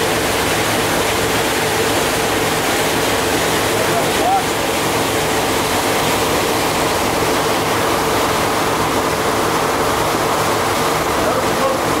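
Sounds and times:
water rushing past boat: 0:00.0 - 0:12.0
wind: 0:00.0 - 0:12.0.

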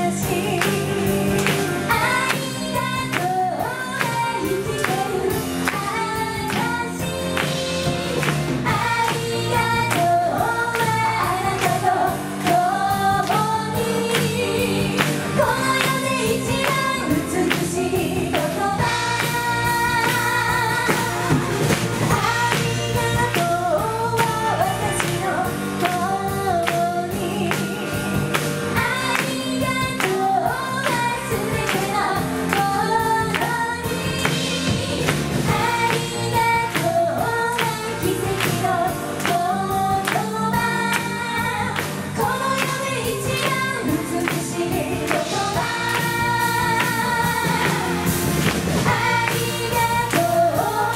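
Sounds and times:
live pop band: 0:00.0 - 0:50.9
women singing: 0:00.0 - 0:50.9.

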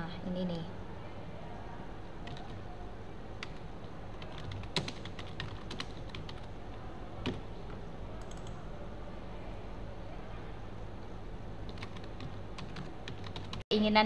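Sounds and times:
steady low hum: 0:00.0 - 0:14.0
computer keyboard typing: 0:02.2 - 0:02.6, 0:03.4 - 0:06.6, 0:07.2 - 0:08.6, 0:11.6 - 0:13.6.

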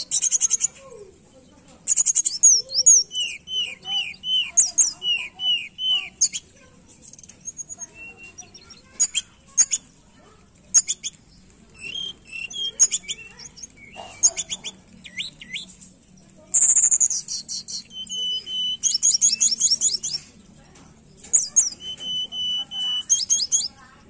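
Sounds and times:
bird chirping and whistling: 0:00.0 - 0:00.7, 0:01.9 - 0:06.5, 0:07.1 - 0:09.8, 0:11.8 - 0:15.8, 0:16.5 - 0:20.3, 0:21.3 - 0:23.8.

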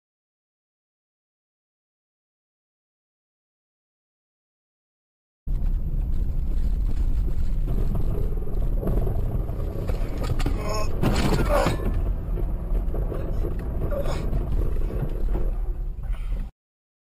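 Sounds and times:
car collision crunch: 0:05.5 - 0:16.0
car interior road rumble: 0:05.5 - 0:16.5.

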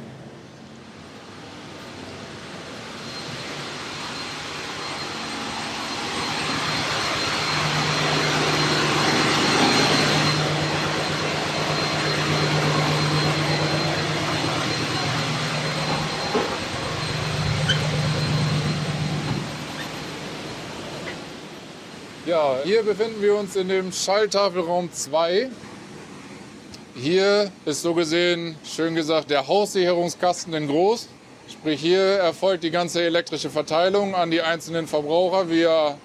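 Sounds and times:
ship machinery rush and hum: 0:00.0 - 0:24.6
thin high machinery whine: 0:00.0 - 0:36.0.

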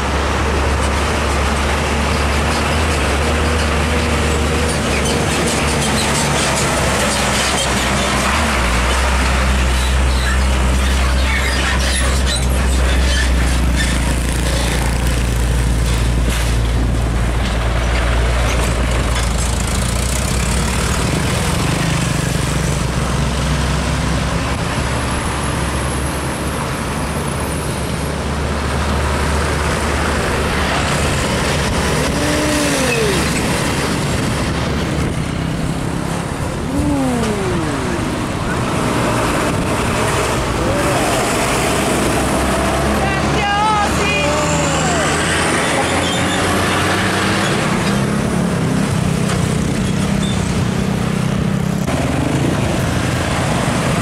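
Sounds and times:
heavy trucks passing: 0:00.0 - 0:54.0.

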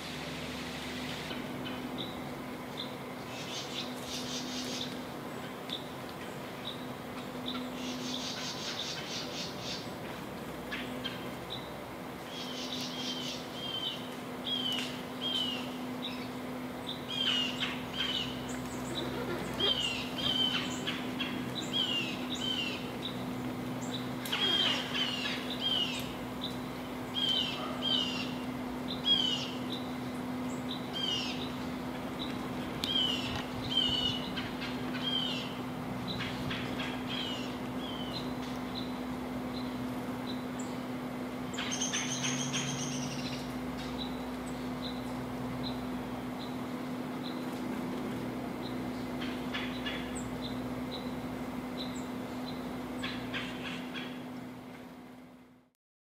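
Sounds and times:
songbird chip notes: 0:10.7 - 0:47.6.

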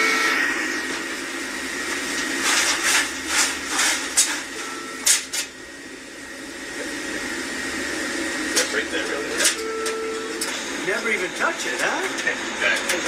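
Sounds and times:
kitchen fryer and exhaust hum: 0:00.0 - 0:13.0.

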